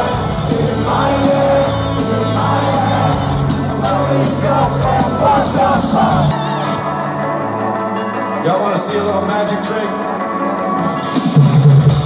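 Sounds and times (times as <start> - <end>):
bass notes: 0.0 - 6.3
person singing: 0.0 - 6.7
live rock band: 0.0 - 12.0.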